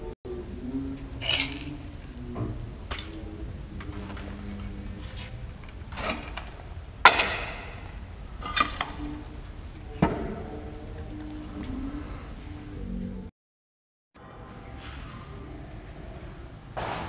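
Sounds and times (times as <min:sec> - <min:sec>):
low steady rumble: 0:00.0 - 0:13.3.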